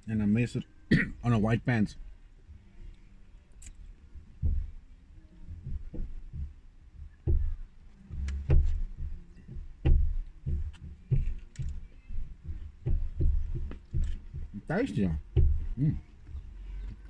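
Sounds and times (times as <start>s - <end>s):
low handling knocks: 5.6s - 17.0s.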